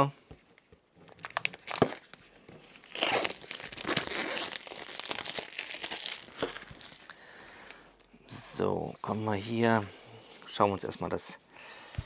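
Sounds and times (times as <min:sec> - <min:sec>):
plastic wrap crinkling and tearing: 0:01.0 - 0:07.2.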